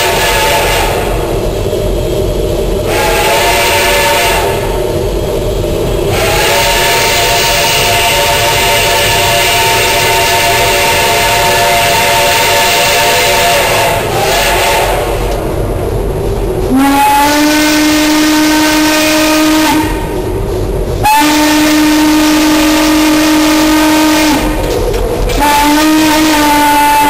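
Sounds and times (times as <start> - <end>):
steam locomotive chime whistle: 0.0 - 1.3, 2.8 - 4.8, 6.1 - 15.4, 16.7 - 20.2, 21.0 - 24.7, 25.4 - 27.0
steam hissing: 0.0 - 27.0
steam locomotive working: 0.0 - 27.0.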